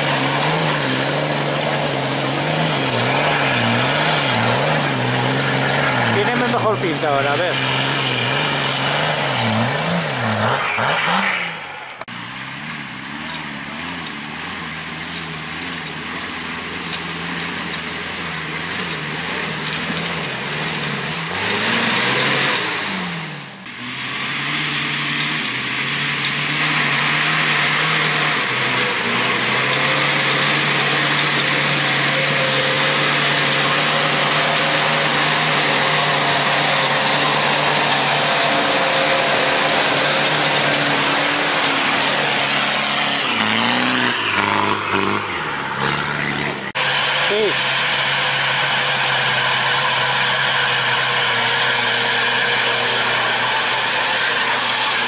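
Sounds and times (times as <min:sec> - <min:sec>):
off-road engines labouring: 0:00.0 - 0:55.0.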